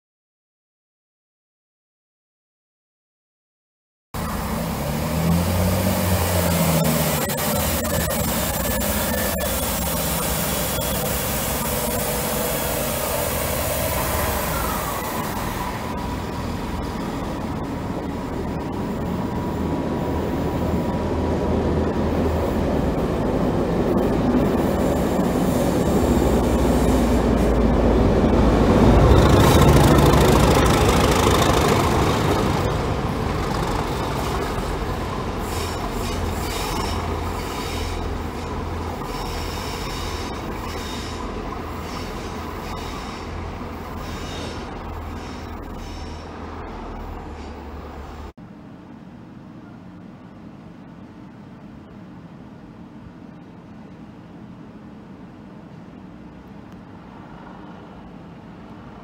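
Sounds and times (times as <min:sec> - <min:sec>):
diesel locomotive engine: 0:04.2 - 0:59.0
train coaches rumbling over track: 0:04.2 - 0:59.0
thin wheel squeal: 0:35.4 - 0:38.1, 0:39.0 - 0:41.2, 0:41.8 - 0:46.4.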